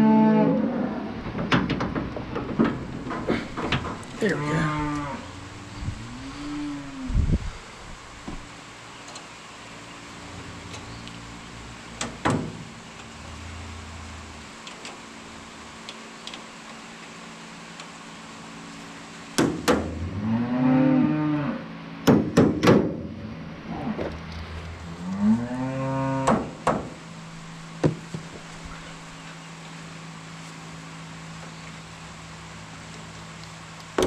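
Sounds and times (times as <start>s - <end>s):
cow mooing: 0.0s - 1.2s, 4.2s - 7.2s, 20.0s - 21.7s, 24.8s - 26.6s.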